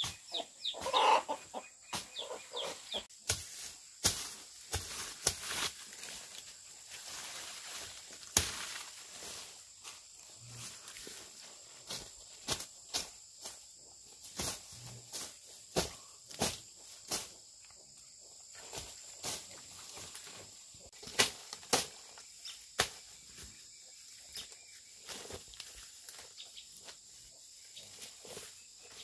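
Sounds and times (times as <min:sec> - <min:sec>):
hand tool chopping weeds: 0:03.2 - 0:06.2, 0:08.1 - 0:09.0, 0:14.3 - 0:17.4, 0:20.9 - 0:23.1.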